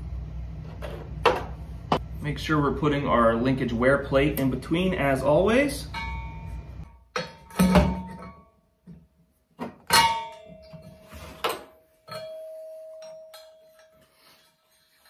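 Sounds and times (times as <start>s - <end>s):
metal ringing tone: 5.7s - 8.8s, 9.9s - 15.0s.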